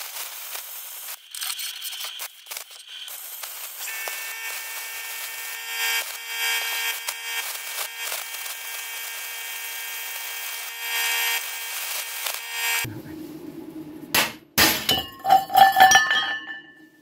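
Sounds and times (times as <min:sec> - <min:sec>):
plasma cutter hissing: 0:00.0 - 0:12.9.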